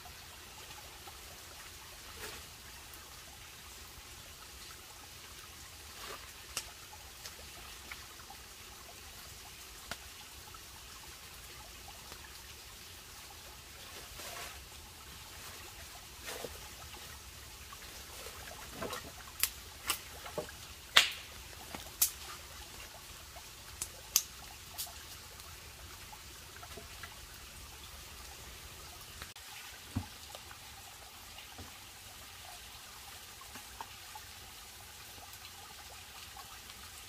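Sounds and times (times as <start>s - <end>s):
stream trickling: 0.0s - 37.0s
wood fire crackling and popping: 19.4s - 20.1s, 20.9s - 22.2s, 23.8s - 25.0s.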